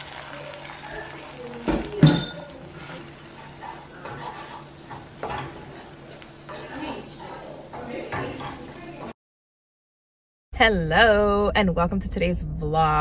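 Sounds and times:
spatula stirring eggs in pan: 0:00.0 - 0:08.8.

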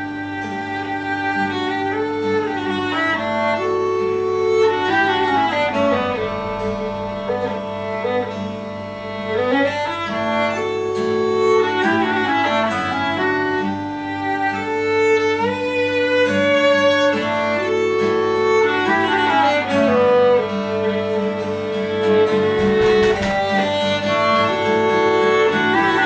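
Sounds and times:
acoustic guitar accompaniment: 0:00.0 - 0:26.0
clarinet melody: 0:00.0 - 0:26.0
violin melody: 0:00.0 - 0:26.0.

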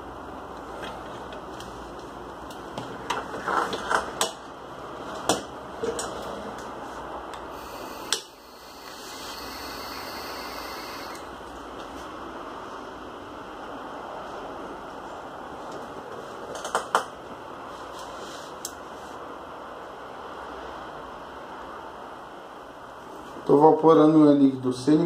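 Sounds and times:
vape coil hissing: 0:07.5 - 0:11.3.

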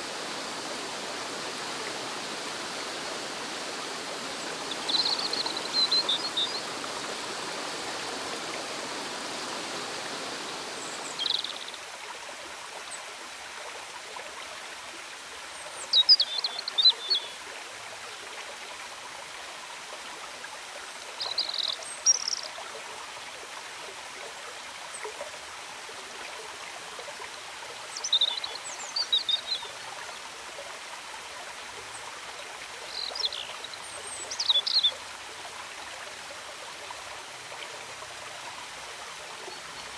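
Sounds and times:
stream rushing over rocks: 0:00.0 - 0:12.9
bird chirping: 0:04.4 - 0:11.8.

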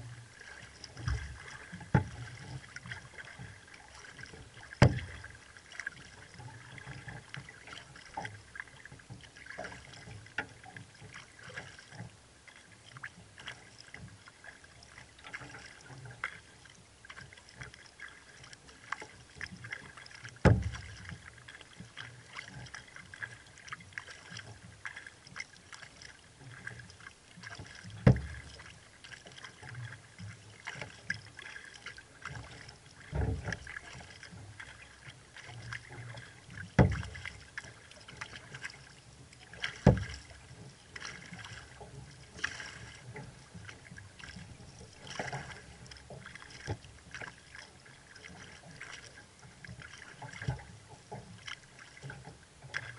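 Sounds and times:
water dripping off kayak paddle: 0:14.7 - 0:38.8, 0:39.4 - 0:50.6.

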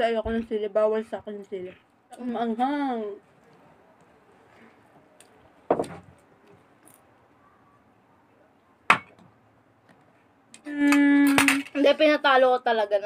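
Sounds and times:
tableware knocking on table: 0:05.7 - 0:06.1, 0:08.9 - 0:09.2.

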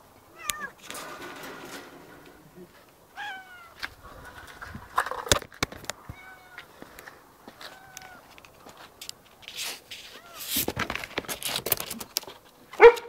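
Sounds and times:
sharp knocks and clatter: 0:00.8 - 0:02.5.

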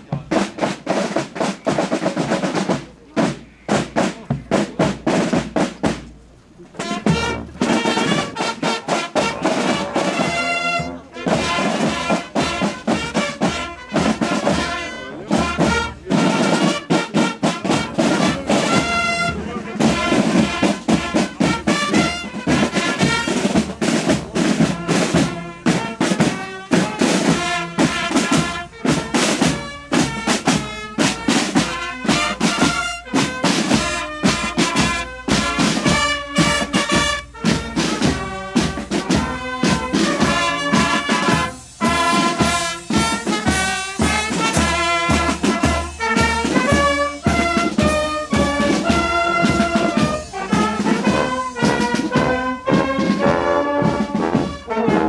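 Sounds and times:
brass playing a march: 0:00.0 - 0:06.1, 0:06.7 - 0:55.0
snare and bass drums: 0:00.0 - 0:55.0.

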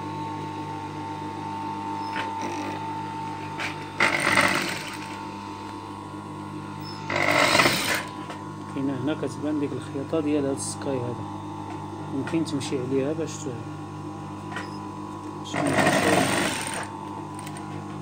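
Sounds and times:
motor hum: 0:00.0 - 0:18.0
sewing machine stitching: 0:02.1 - 0:02.8, 0:04.0 - 0:05.2, 0:07.1 - 0:08.1, 0:15.5 - 0:17.6.

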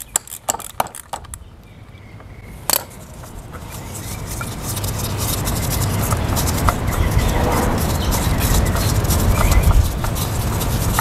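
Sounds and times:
sharp metallic clicks: 0:00.0 - 0:07.3
steady rush of noise: 0:02.5 - 0:11.0.

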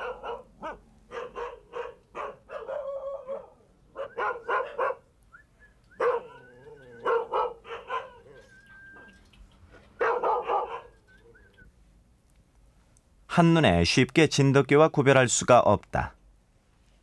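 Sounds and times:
dogs barking and yipping: 0:00.0 - 0:05.1, 0:05.8 - 0:11.6
dog whining cries: 0:06.0 - 0:09.2.

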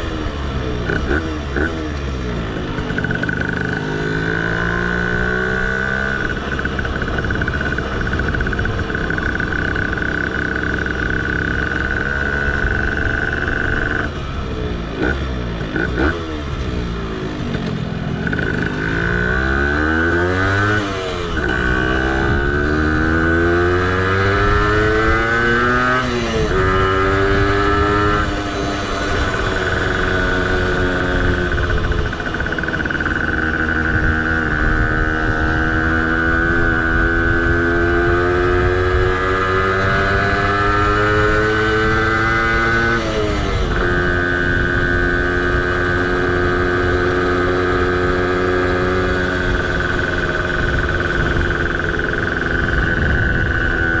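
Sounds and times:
moped two-stroke engine revving: 0:00.0 - 0:54.0.

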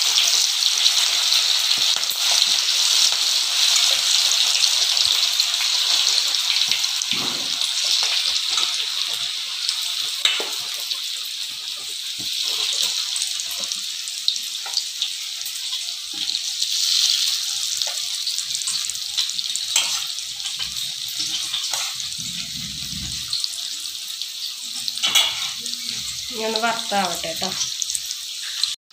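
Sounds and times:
chicken deep-frying in oil: 0:00.0 - 0:28.9.

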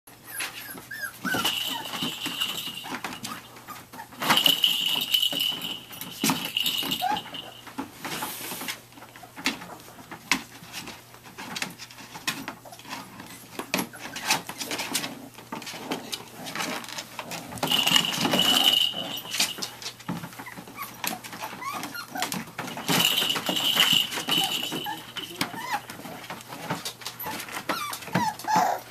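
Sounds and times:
puppies whimpering: 0:00.2 - 0:02.0, 0:20.3 - 0:22.4, 0:24.3 - 0:26.2, 0:27.1 - 0:28.9
rustling: 0:00.3 - 0:28.9
paws scratching on plastic: 0:08.1 - 0:17.8, 0:19.9 - 0:23.2, 0:24.4 - 0:28.9.

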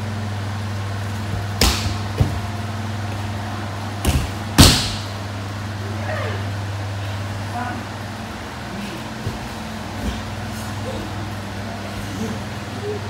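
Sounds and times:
bodies thudding on mats: 0:01.2 - 0:02.7, 0:04.0 - 0:05.1, 0:09.1 - 0:10.7.

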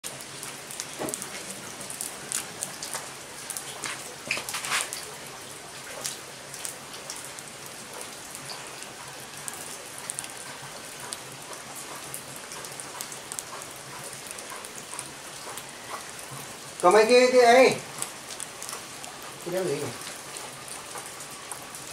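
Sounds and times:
wood fire crackling and popping: 0:00.0 - 0:21.9.

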